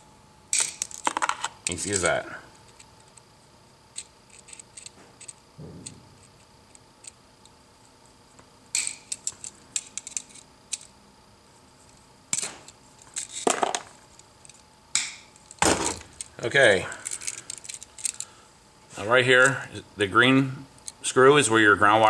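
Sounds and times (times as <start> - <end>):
metallic clicks of tools handled: 16.9 - 18.3.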